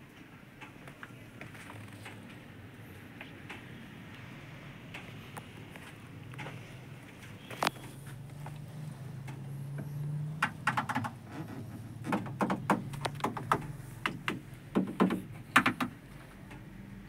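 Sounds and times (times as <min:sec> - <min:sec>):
handling clicks and knocks: 0:07.2 - 0:16.3.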